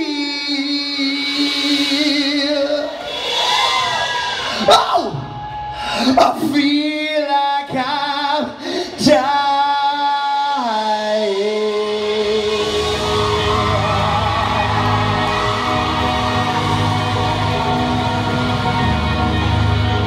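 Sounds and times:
man singing sustained notes: 6.5 - 20.0
rock band playing: 11.9 - 20.0.

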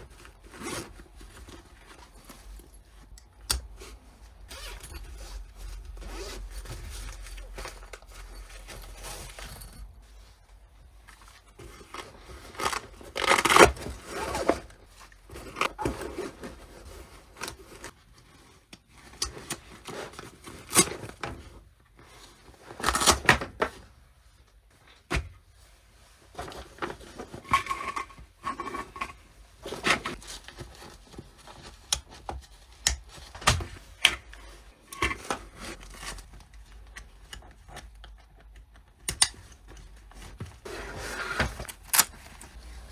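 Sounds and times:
fabric bag rustling and scraping: 0.0 - 18.5, 40.1 - 42.9.

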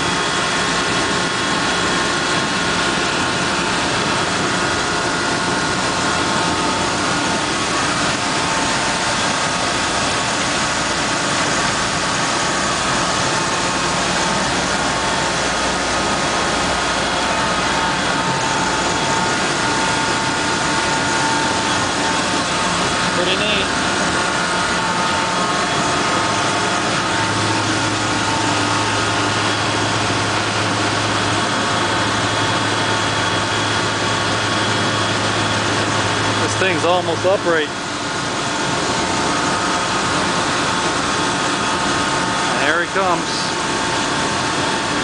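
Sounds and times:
truck engine running: 0.0 - 45.0
whining tones: 4.2 - 37.0.

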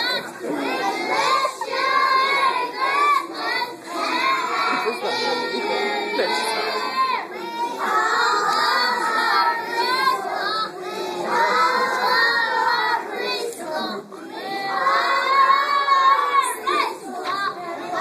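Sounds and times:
children singing: 0.0 - 18.0.

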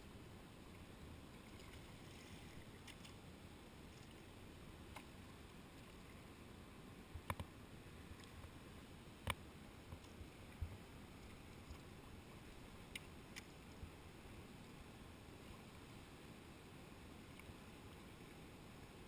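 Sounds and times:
paddle clicks and taps: 7.2 - 7.5.

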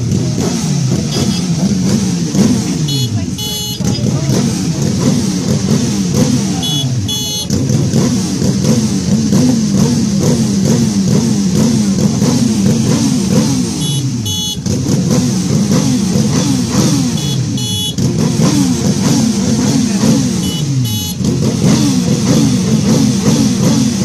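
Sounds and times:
motorcycle engines revving: 0.0 - 24.0
short high tones: 6.6 - 7.6.

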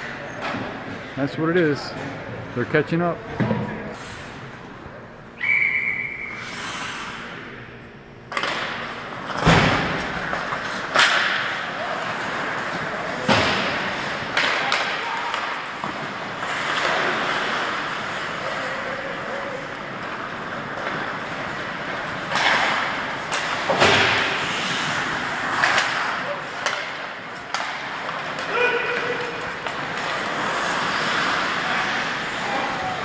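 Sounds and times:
sticks and puck clacking: 8.3 - 33.0
skates scraping ice: 8.4 - 33.0.

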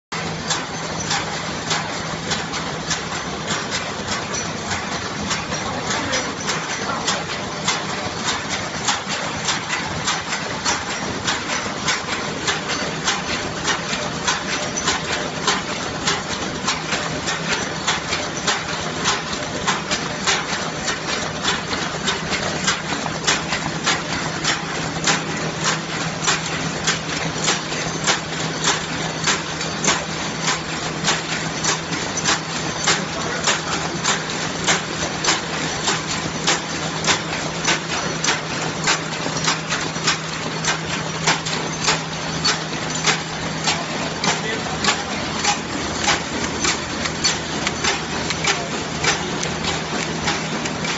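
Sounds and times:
machine humming: 20.6 - 50.9.

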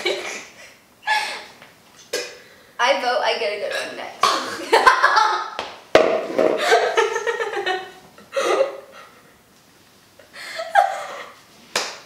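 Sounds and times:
girl laughing hard: 0.0 - 1.6, 4.4 - 5.6, 6.6 - 9.0, 10.4 - 11.4.

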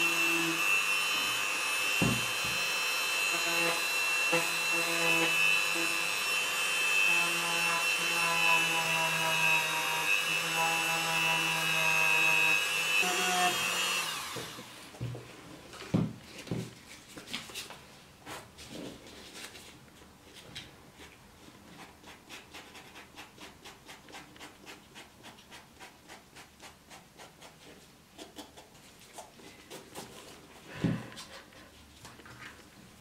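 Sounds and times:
dull knock: 2.0 - 2.6.

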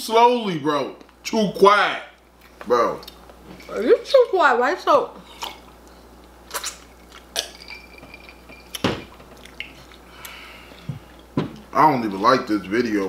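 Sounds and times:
open-mouth chewing: 5.3 - 7.8, 8.6 - 10.4.

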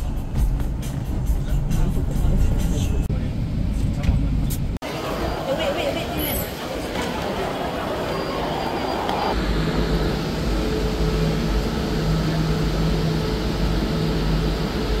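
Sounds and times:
vehicle rumble: 0.0 - 15.0
low hum: 8.0 - 15.0.

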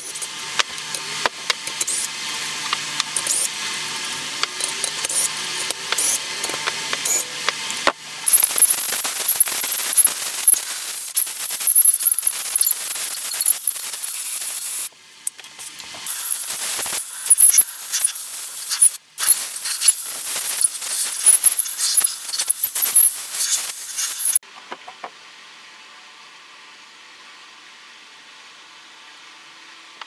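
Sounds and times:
aerosol spray hissing: 8.3 - 14.9, 16.1 - 24.4.

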